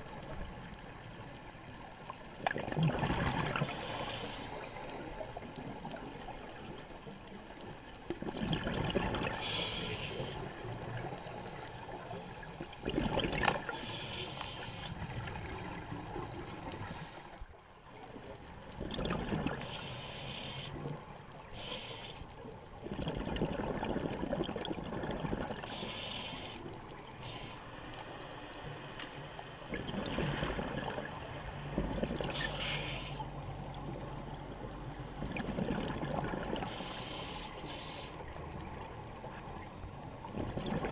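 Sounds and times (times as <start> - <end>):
exhaled air bubbling: 2.4 - 4.0, 8.1 - 11.2, 11.9 - 13.8, 18.7 - 19.7, 22.8 - 26.2, 29.6 - 38.4, 40.2 - 40.9
regulator hissing inhalation: 9.4 - 10.4, 19.6 - 20.8, 25.7 - 27.7, 32.3 - 33.3, 36.7 - 38.2.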